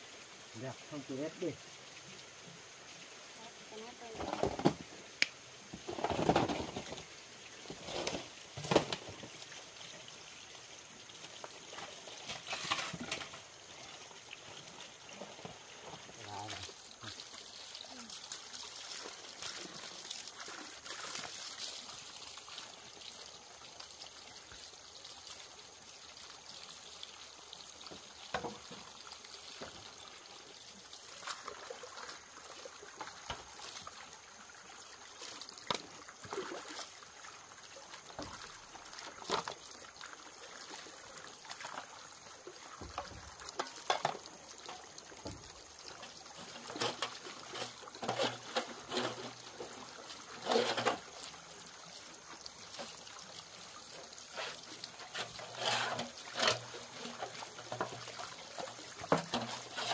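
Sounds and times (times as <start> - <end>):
water trickling: 0.0 - 59.9
short knocks and scrapes: 5.8 - 7.0, 46.5 - 49.7, 50.4 - 51.1, 54.3 - 58.0, 59.1 - 59.9.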